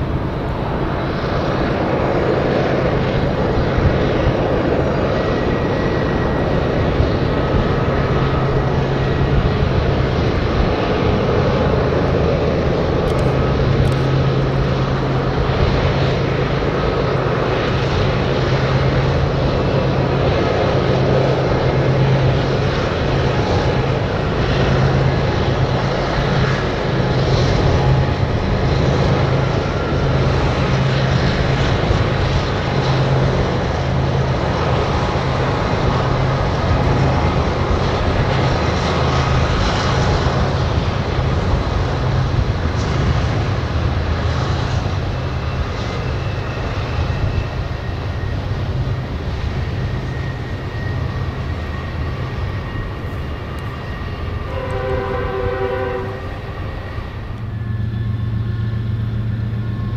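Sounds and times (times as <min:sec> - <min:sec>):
diesel locomotive engine drone: 0:00.0 - 0:59.9
rumbling rail noise: 0:00.0 - 0:59.9
multi-note train horn: 0:54.5 - 0:56.8.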